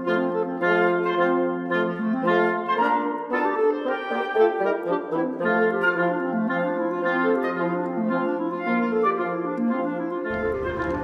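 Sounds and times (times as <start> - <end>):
wind instrument music: 0.0 - 11.0
low rumble: 10.3 - 11.0.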